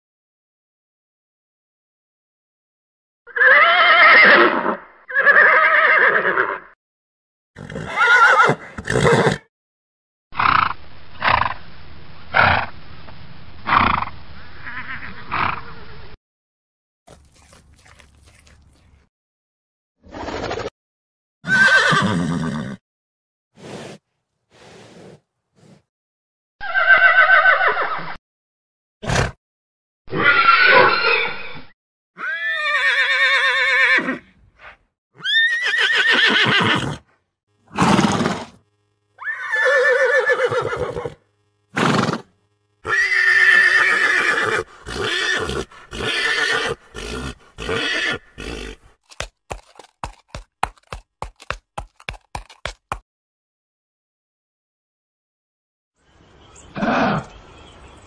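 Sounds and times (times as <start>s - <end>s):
horses neighing: 3.3s - 6.6s, 7.6s - 9.5s, 21.5s - 22.8s, 32.2s - 34.3s, 35.2s - 37.0s, 37.7s - 38.6s, 39.2s - 41.2s, 41.8s - 49.0s
horse snorting: 7.6s - 9.4s, 23.6s - 25.9s, 37.7s - 38.6s, 39.2s - 53.0s
hoofbeats: 44.6s - 53.0s.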